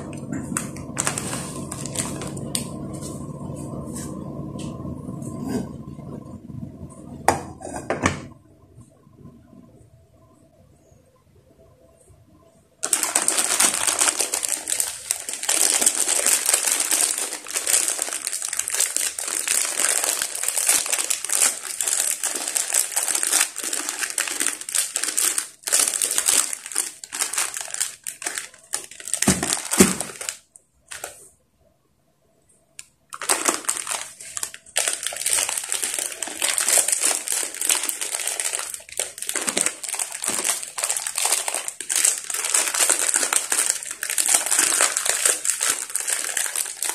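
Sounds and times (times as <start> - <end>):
plastic wrappers crinkling: 0.0 - 3.9, 12.8 - 31.3, 32.8 - 46.9.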